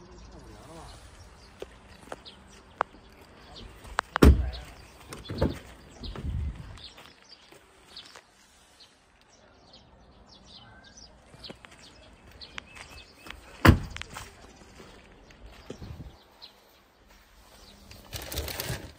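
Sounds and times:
birds chirping: 0.0 - 18.9
car door thumping shut: 4.2 - 4.6, 13.6 - 14.0.

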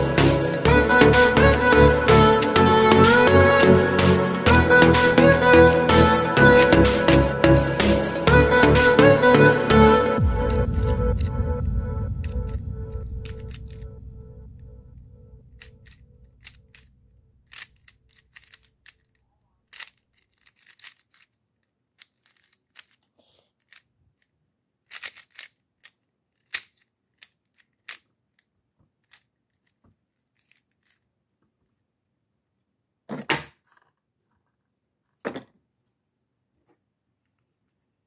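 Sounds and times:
puzzle cube clatter: 15.5 - 31.1
puzzle cube plastic clicks: 15.6 - 31.1.

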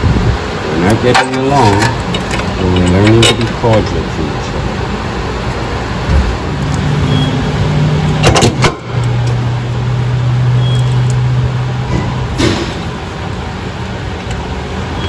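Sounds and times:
constant rushing noise: 0.0 - 15.0
machine hum: 0.0 - 15.0
rattle of sharp clicks: 0.9 - 3.9.

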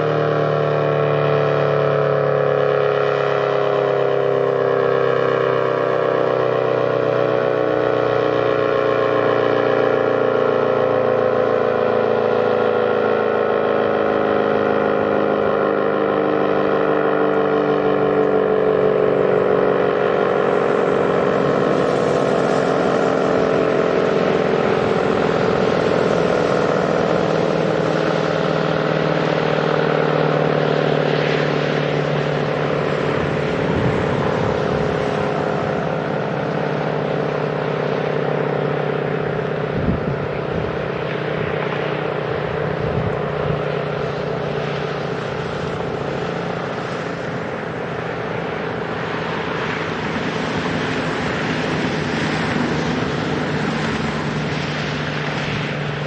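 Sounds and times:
warning siren winding down: 0.0 - 56.0.

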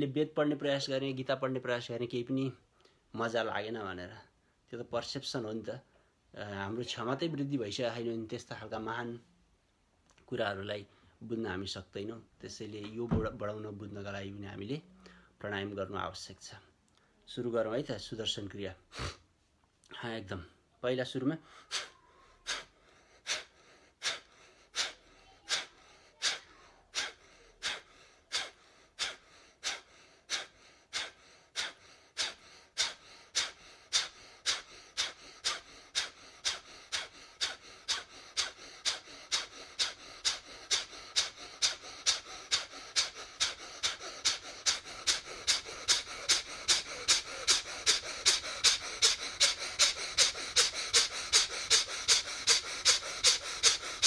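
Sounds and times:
man breathing forcefully through nose: 21.4 - 54.0.

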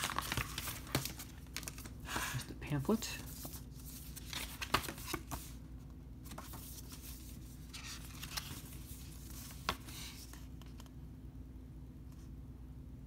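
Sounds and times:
paper pages rustling: 0.0 - 2.4, 3.2 - 5.6, 6.2 - 11.0.

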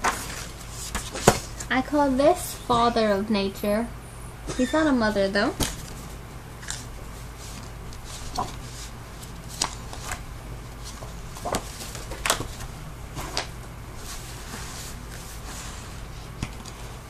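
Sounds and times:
paper rustling and flapping: 0.0 - 1.7, 5.6 - 17.0
steady low hum: 0.0 - 17.0.

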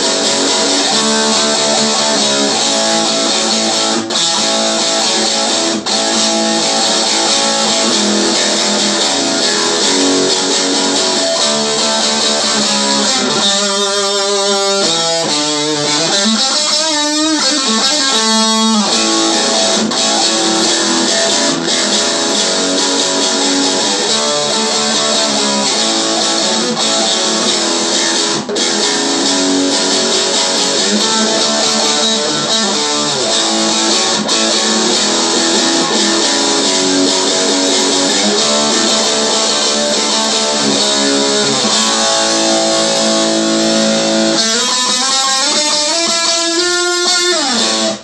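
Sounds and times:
electric guitar blues riff: 0.0 - 48.0.

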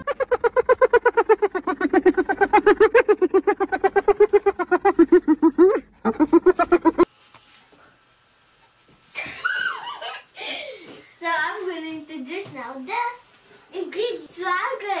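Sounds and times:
rapid high laughing effect: 0.0 - 7.1.

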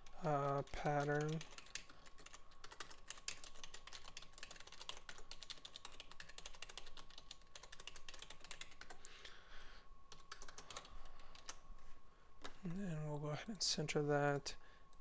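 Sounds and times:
keyboard typing clicks: 0.4 - 9.1
faint steady tone: 8.3 - 15.0.

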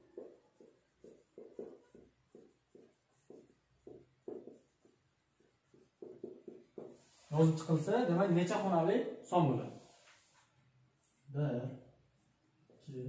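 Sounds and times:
marker pen writing on whiteboard: 0.0 - 8.7, 9.6 - 10.6.

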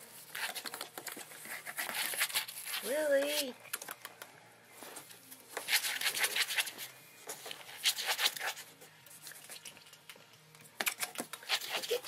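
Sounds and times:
claws scratching on cardboard: 0.3 - 3.4, 5.5 - 9.5, 11.1 - 12.0.

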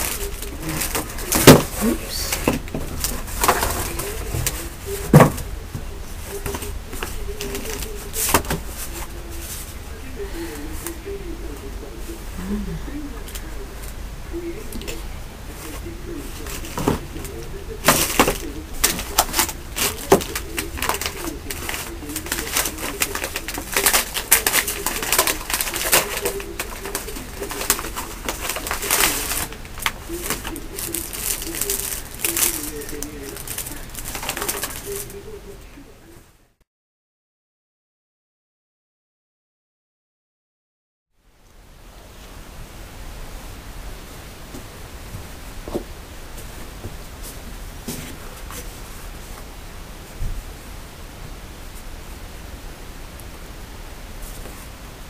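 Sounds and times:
plastic wrapping crinkling: 0.0 - 11.2, 14.6 - 35.4.

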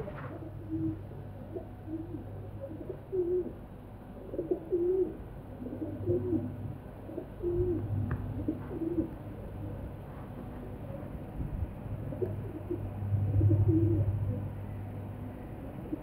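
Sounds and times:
pigeon cooing: 0.0 - 3.6, 4.2 - 9.8, 12.0 - 14.5.

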